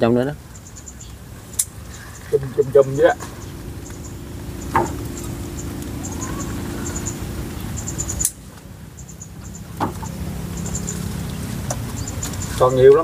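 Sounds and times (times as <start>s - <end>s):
low motor hum: 0.0s - 13.0s
sharp snap: 1.6s - 1.8s.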